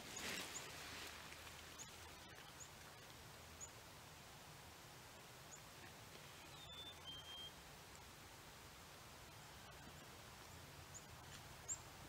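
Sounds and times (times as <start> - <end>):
faint high bird chirps: 6.2 - 7.6.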